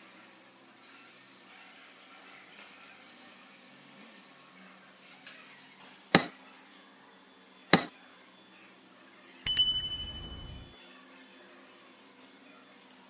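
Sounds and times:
metal object clinking and ringing: 9.5 - 10.8.

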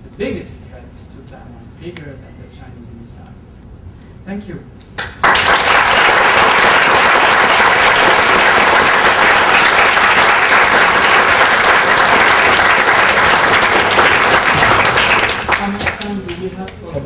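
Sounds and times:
audience applauding: 5.0 - 16.5.

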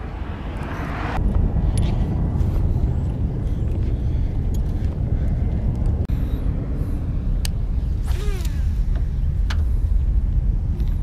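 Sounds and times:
road traffic: 0.0 - 11.0
wind on microphone: 0.0 - 11.0.

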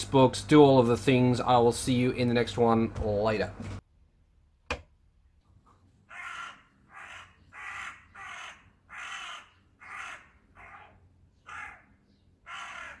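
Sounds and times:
crow cawing: 6.1 - 13.0.

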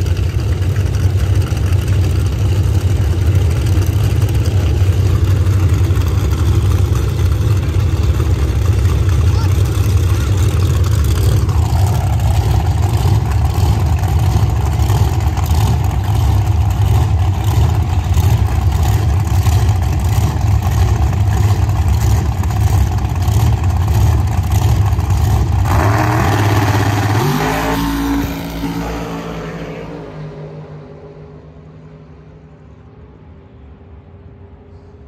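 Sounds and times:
loud racing car engine: 0.0 - 35.0
engine revving up: 9.3 - 31.2.

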